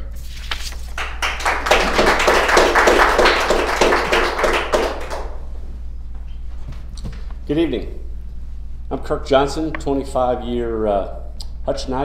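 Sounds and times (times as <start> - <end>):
audience applauding: 0.9 - 5.4.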